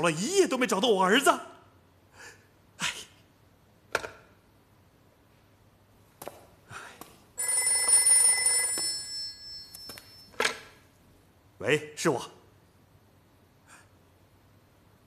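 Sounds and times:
telephone bell ringing: 7.4s - 10.4s.

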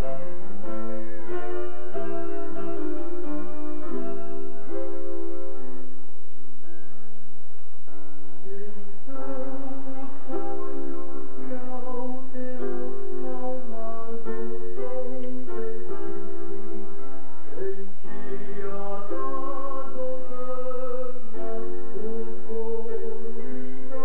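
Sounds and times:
instrumental accompaniment: 0.0s - 24.0s
vocal group singing: 17.3s - 24.0s.

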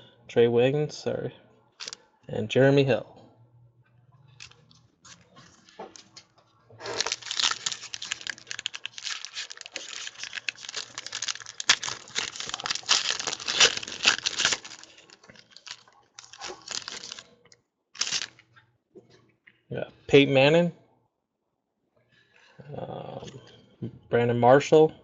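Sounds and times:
foil wrapper tearing and crinkling: 6.8s - 17.3s, 18.0s - 18.4s.

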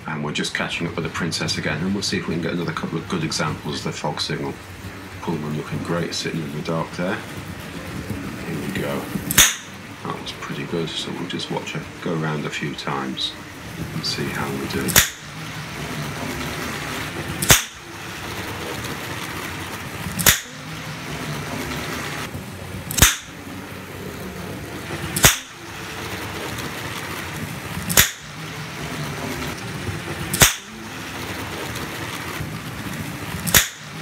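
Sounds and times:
model train rumbling on track: 0.0s - 34.0s
toy caps cracking: 20.1s - 20.6s, 27.8s - 28.3s, 30.3s - 30.8s, 33.5s - 33.9s.

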